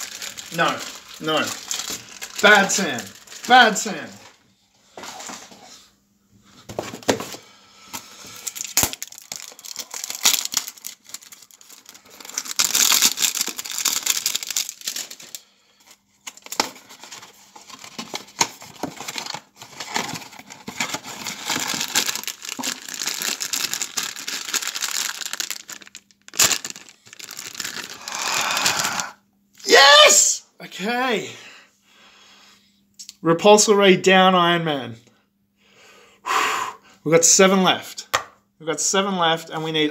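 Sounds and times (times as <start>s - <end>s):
foil bag crinkling and tearing: 0.0s - 4.2s, 8.0s - 29.1s.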